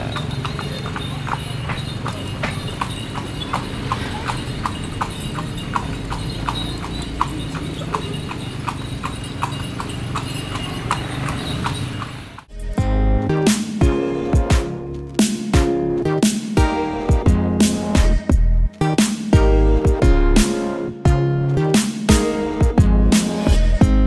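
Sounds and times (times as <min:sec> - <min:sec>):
horse hooves clip-clopping on pavement: 0:00.0 - 0:12.5.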